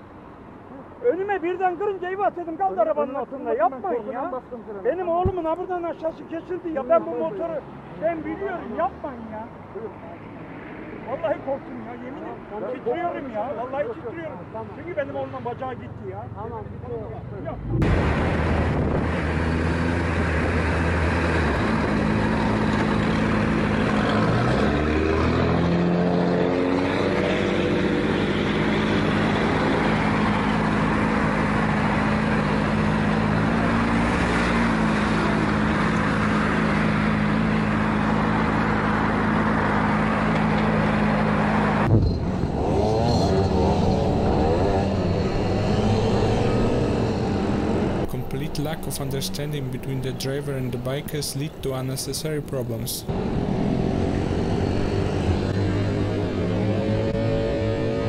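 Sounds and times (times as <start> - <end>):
motorcycle engine revving: 17.6 - 51.2, 53.1 - 58.0
wind rush: 17.7 - 20.4
motorcycle with wavering engine note: 53.1 - 58.0.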